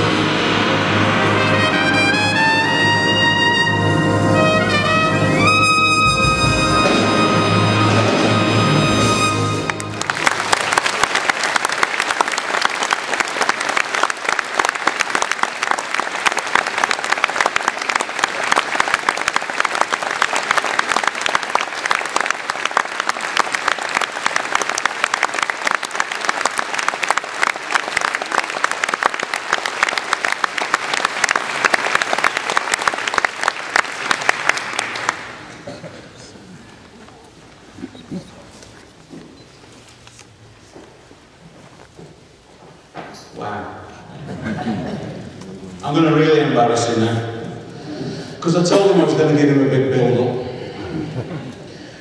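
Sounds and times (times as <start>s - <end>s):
brass band final chord: 0.0s - 10.2s
audience applauding: 5.4s - 36.2s.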